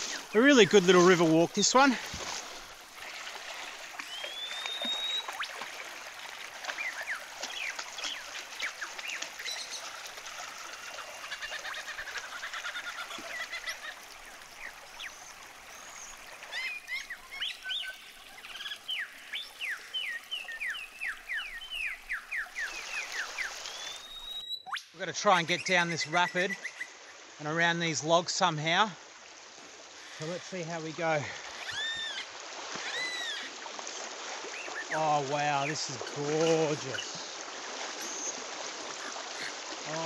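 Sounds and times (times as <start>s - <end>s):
shallow river rushing: 0.0s - 19.0s, 27.2s - 40.0s
birds chirping and whistling: 4.0s - 5.5s, 18.6s - 24.9s, 31.6s - 32.2s.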